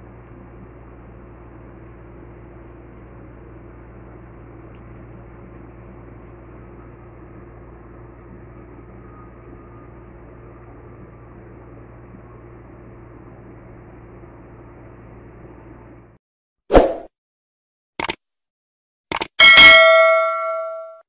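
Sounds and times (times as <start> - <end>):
low mechanical hum with hiss: 0.0 - 16.2.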